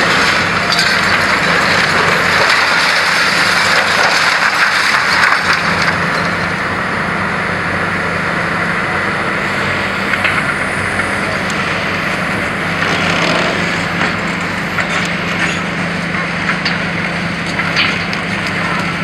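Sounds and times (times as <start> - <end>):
concrete crunching: 0.0 - 6.6
concrete debris clattering: 0.0 - 6.6
excavator diesel engine running: 0.0 - 19.0.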